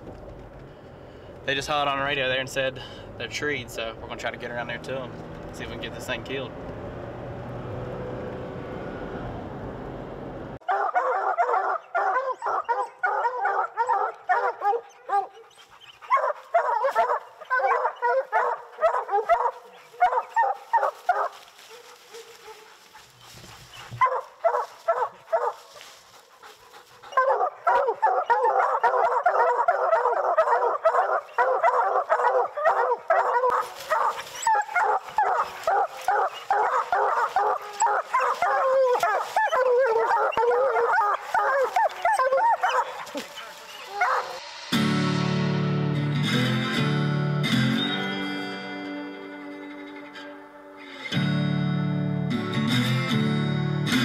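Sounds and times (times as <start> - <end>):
low road hum in vehicle cab: 0.0 - 10.6
hounds barking: 10.6 - 44.7.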